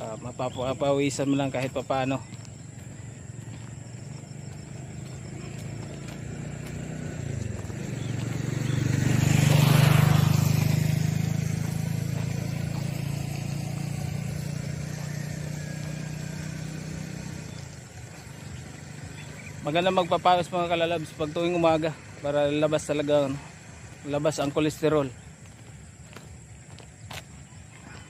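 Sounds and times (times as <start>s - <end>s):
vehicle driving past: 0.0s - 25.7s.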